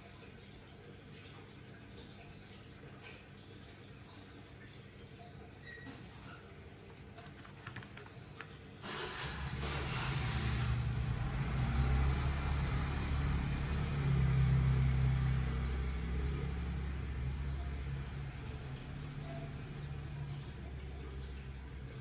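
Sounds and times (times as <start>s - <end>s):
engine humming: 8.8s - 22.0s.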